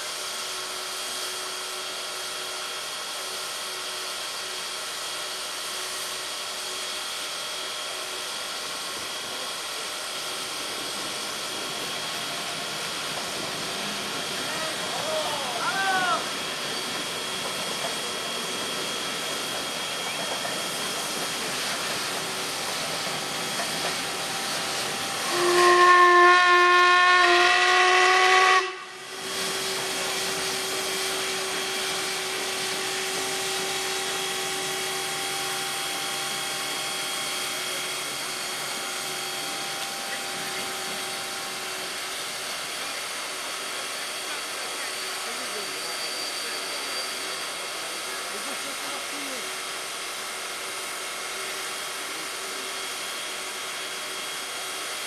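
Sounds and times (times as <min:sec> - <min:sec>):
steam hissing: 0:00.0 - 0:26.8, 0:28.8 - 0:55.0
steam whistle blast: 0:24.8 - 0:29.3.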